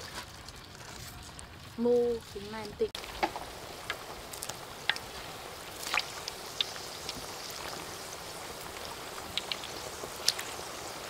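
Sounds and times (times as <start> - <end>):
hot oil sizzling: 0.0 - 11.0
oil popping: 0.0 - 11.0.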